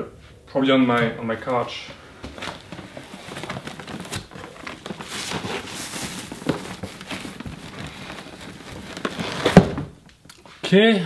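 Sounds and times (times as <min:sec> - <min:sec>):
rustling and scraping in box: 0:01.9 - 0:10.0.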